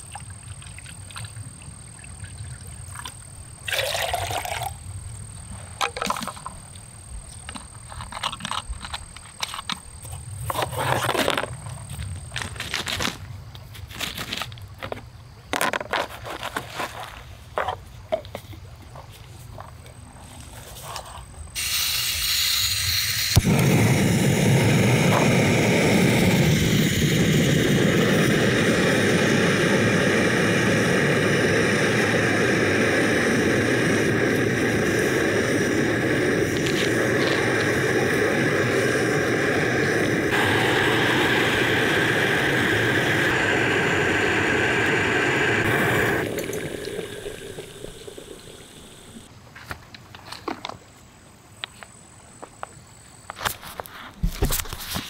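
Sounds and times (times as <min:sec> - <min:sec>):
gas hissing: 0:21.6 - 0:49.3
stove flame rushing: 0:21.6 - 0:49.3.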